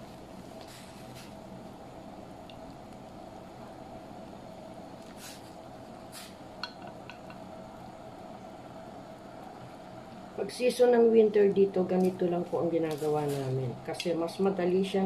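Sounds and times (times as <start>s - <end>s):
soup boiling in a pot: 0.0s - 11.7s
steady hum: 0.0s - 15.0s.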